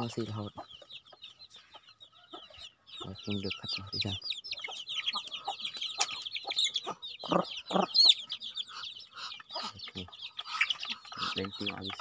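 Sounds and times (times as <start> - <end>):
chicks peeping: 0.0 - 12.0
lower clucks: 3.8 - 12.0.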